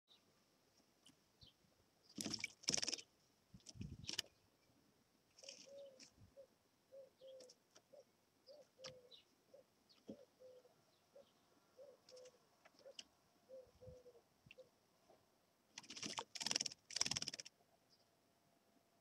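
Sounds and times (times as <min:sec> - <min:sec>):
bird splashing in water: 0:02.1 - 0:03.1, 0:15.8 - 0:17.5.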